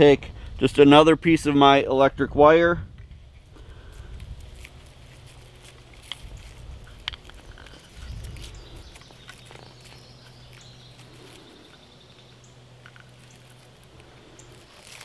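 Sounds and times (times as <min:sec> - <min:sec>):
low steady hum: 0:00.0 - 0:15.0
wire clicks and scrapes: 0:03.4 - 0:11.8.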